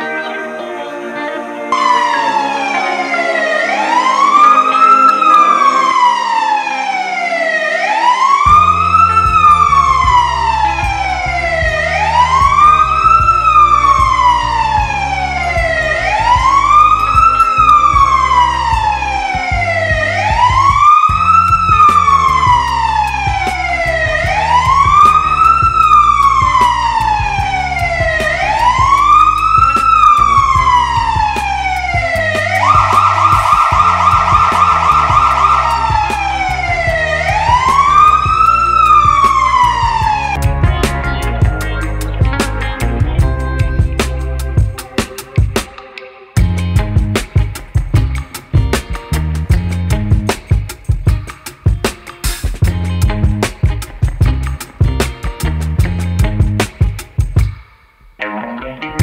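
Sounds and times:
ambulance siren wailing: 0.0s - 46.8s
background music: 0.0s - 59.0s.

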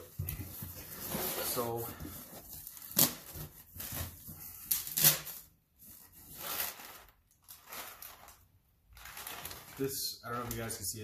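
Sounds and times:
packing paper rustling and crinkling: 6.2s - 10.8s.

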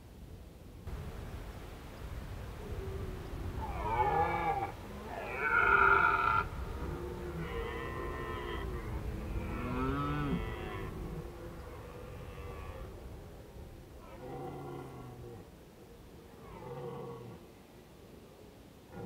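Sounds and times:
stag roaring: 3.6s - 13.2s.

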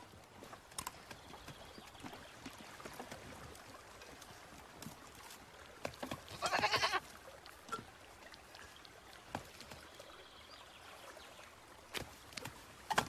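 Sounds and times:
farm animal bleating: 6.3s - 7.1s.

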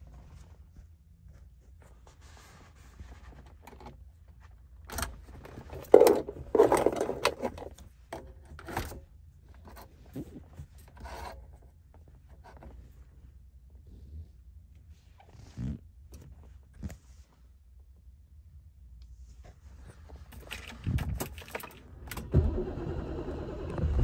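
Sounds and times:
rubbing and scraping handling noise: 0.0s - 17.8s, 19.1s - 21.8s.

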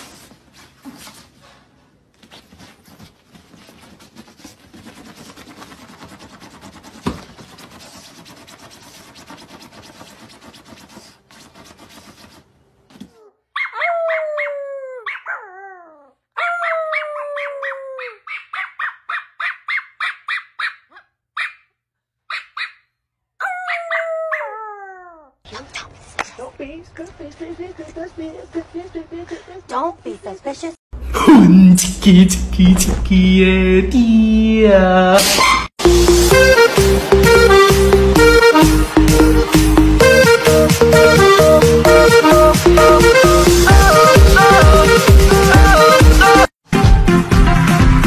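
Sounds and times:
dog yipping: 13.1s - 21.7s, 22.3s - 25.3s
dog howling: 13.6s - 18.2s, 23.4s - 25.3s.

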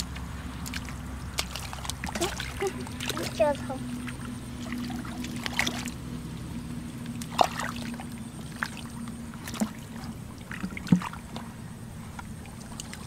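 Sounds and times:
hands splashing in muddy water: 0.0s - 3.5s
low hum: 0.0s - 13.0s.

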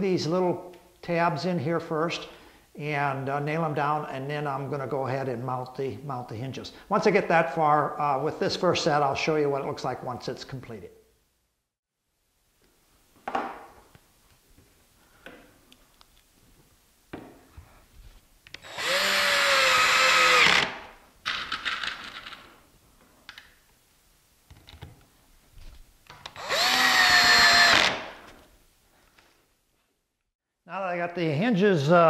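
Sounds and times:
cordless drill driving screws: 18.6s - 20.9s, 26.4s - 28.2s.

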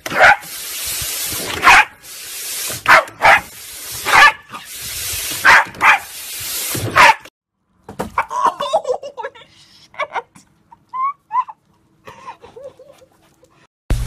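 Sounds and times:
garden hose nozzle hissing: 0.0s - 7.0s
small dog barking: 2.9s - 3.5s, 4.1s - 4.4s, 5.4s - 6.1s.

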